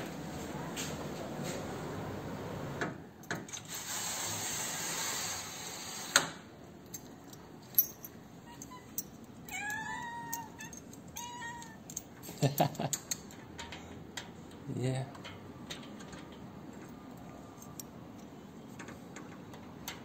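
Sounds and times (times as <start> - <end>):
cat meowing: 8.4 - 11.9.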